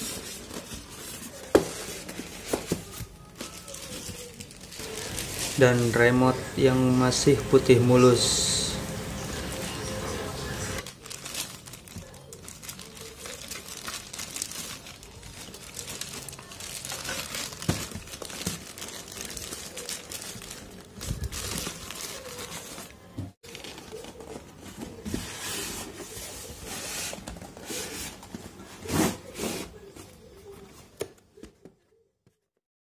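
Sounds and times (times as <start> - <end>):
plastic bag crinkling: 0.0 - 9.2, 10.7 - 25.1.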